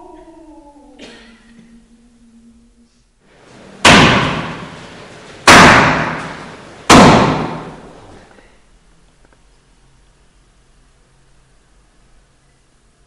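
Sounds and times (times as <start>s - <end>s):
loud slamming impacts: 3.4s - 8.3s.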